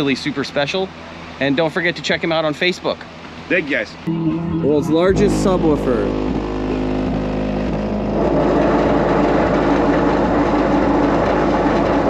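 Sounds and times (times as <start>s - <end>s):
deep subwoofer bass rumble: 4.1s - 12.0s.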